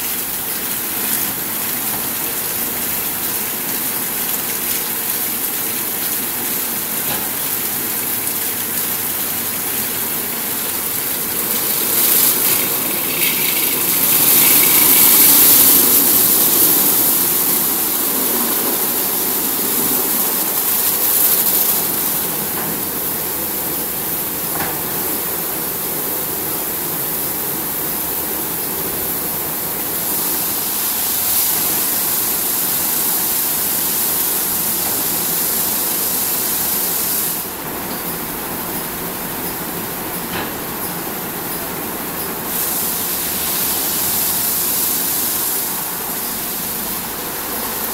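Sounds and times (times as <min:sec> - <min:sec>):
car wash machine hum: 0:00.0 - 0:37.6
car wash water spray hissing: 0:00.0 - 0:47.9.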